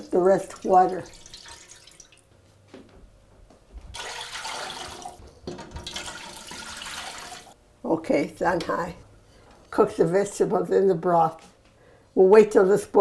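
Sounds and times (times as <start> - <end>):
liquid pouring into metal pot: 0.4 - 2.3, 4.0 - 7.6.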